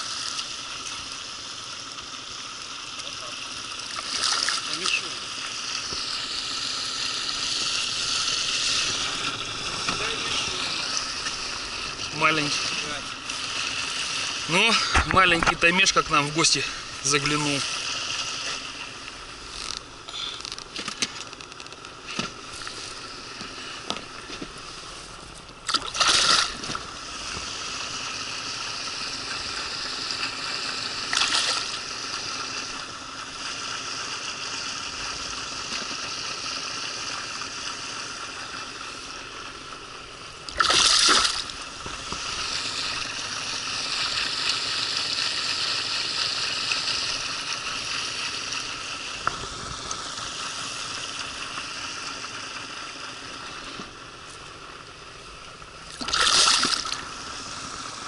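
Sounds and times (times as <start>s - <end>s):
loud water splashes: 3.4s - 18.8s, 25.6s - 32.7s, 40.4s - 50.8s, 55.8s - 58.0s.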